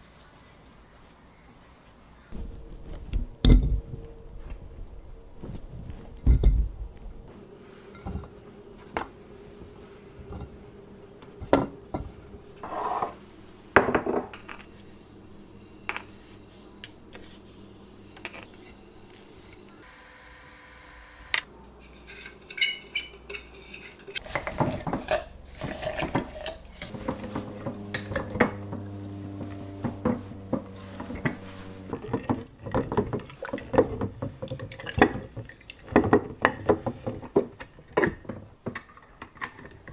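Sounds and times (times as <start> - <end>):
glass jars clinking: 7.9 - 8.4, 21.8 - 28.4
wooden stick mashing grapes: 22.0 - 29.2, 29.8 - 38.8.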